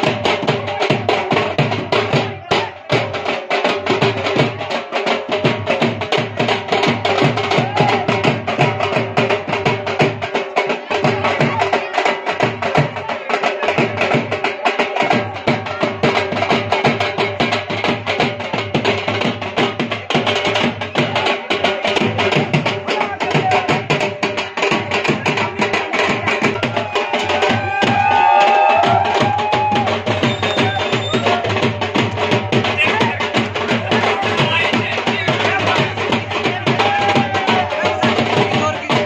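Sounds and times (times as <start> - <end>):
fast driving drumming: 0.0 - 39.0
held tune: 26.6 - 31.8.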